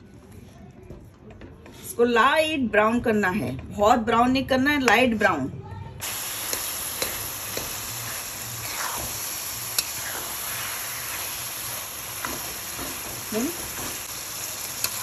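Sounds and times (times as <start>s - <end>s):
food sizzling in a pan: 6.0s - 15.0s.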